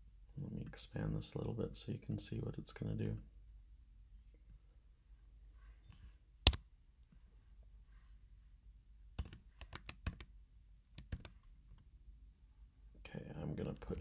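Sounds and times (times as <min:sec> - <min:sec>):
typing on computer keyboard: 0:09.2 - 0:10.3, 0:11.0 - 0:11.4.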